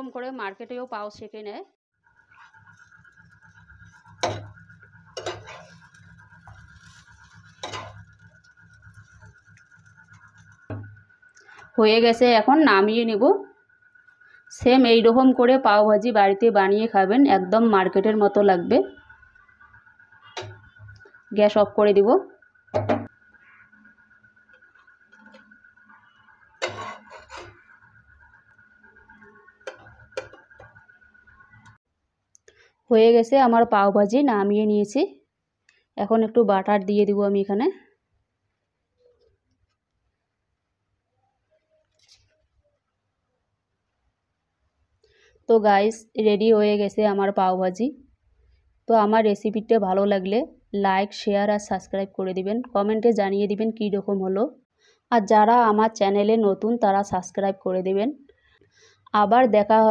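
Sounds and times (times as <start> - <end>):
metal spatula scraping pan: 2.2 - 11.8, 23.0 - 31.8
faint high whine: 2.2 - 31.8
faint steady hum: 2.2 - 59.9
metal spatula knocking on pan: 22.8 - 23.1.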